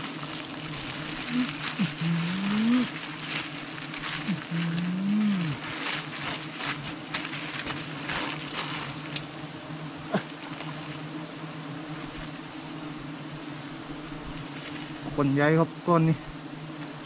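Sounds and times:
rustling scrapes: 0.0s - 9.3s, 14.4s - 15.1s
bees buzzing: 0.0s - 17.0s.

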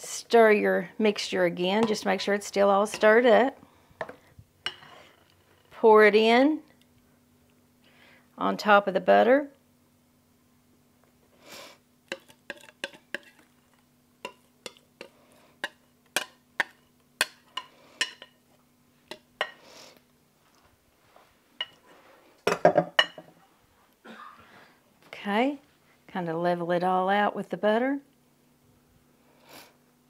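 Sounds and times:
utensil scraping glass bowl: 12.1s - 13.5s.

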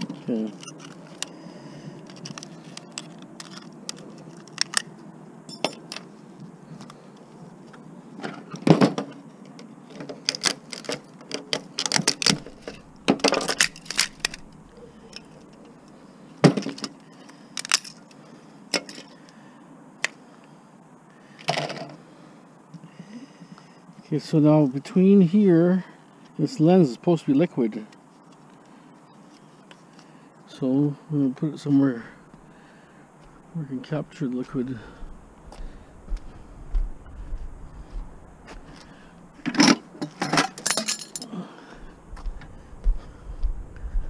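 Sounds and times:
parts and tools clinking on table: 5.5s - 6.0s, 39.5s - 41.3s
steady low hum: 11.0s - 26.8s, 27.8s - 44.0s.

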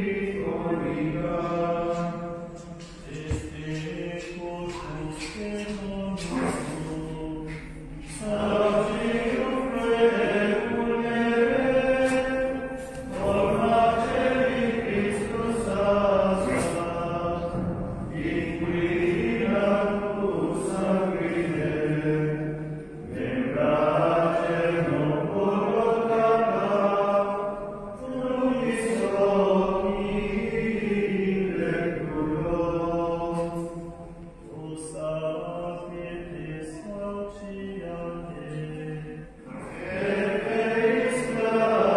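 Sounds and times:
choir singing slow chant: 0.0s - 41.9s.

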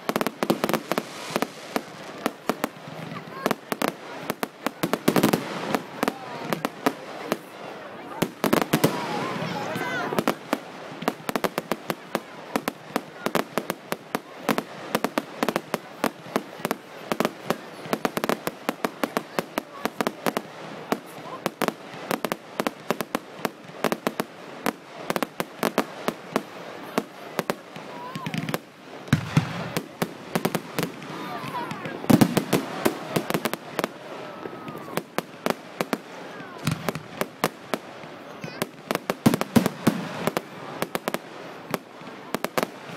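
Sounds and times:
fireworks bangs and cracks: 0.0s - 42.9s
deep fireworks boom: 28.0s - 35.1s.

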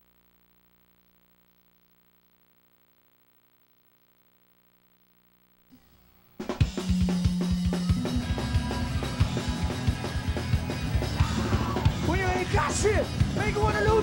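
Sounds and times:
band music: 6.4s - 14.0s.

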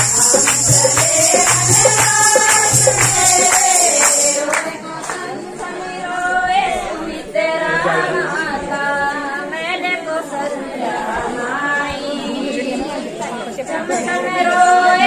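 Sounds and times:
hand drum: 0.0s - 4.6s
jingling percussion: 0.0s - 4.7s
women singing folk song: 0.0s - 15.0s.

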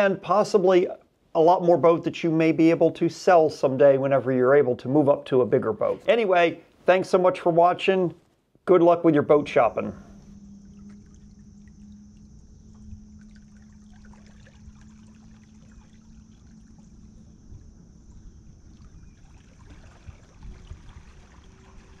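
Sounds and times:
outboard motor humming: 9.3s - 22.0s
soft water sounds: 9.4s - 22.0s.

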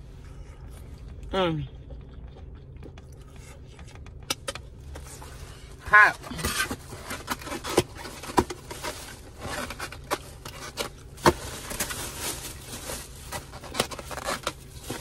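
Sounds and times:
low steady hum in a car: 0.0s - 15.0s
person chewing crunchy food: 0.1s - 5.4s.

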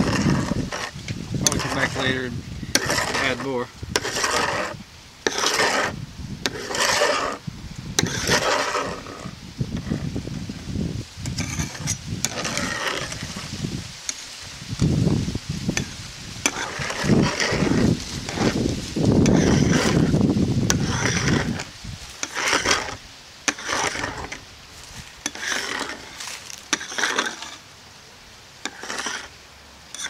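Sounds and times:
metal scraper scraping glass: 0.0s - 7.4s, 8.0s - 10.0s, 11.2s - 13.5s, 15.8s - 18.6s, 19.2s - 20.1s, 20.7s - 24.4s, 25.2s - 27.6s, 28.6s - 30.0s.

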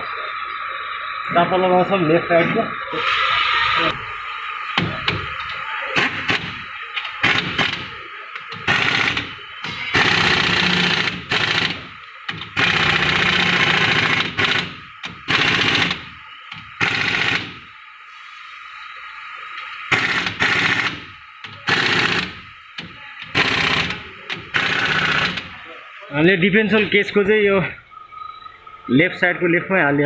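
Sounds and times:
pneumatic impact wrench hammering: 4.8s - 17.7s, 19.9s - 25.5s.

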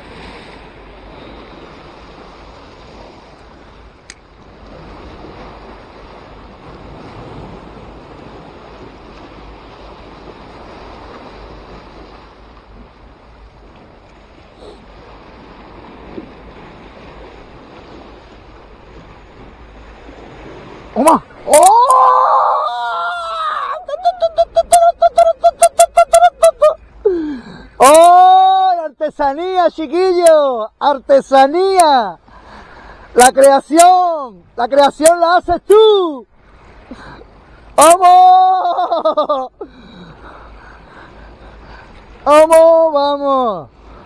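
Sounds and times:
wind on microphone: 0.0s - 21.9s
sea waves washing over concrete: 0.0s - 30.6s, 31.2s - 44.0s.

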